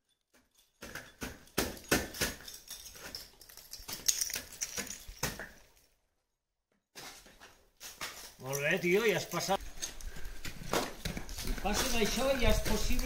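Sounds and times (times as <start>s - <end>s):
sharp strikes and knocks on ice: 0.8s - 2.6s.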